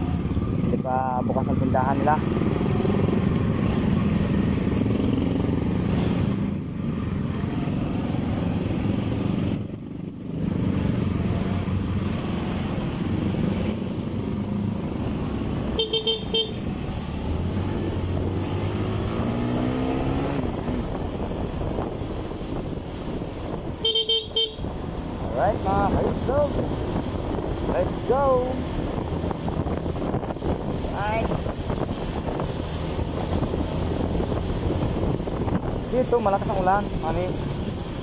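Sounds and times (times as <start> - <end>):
motorcycle horn toot: 15.8 - 16.7, 23.8 - 24.7.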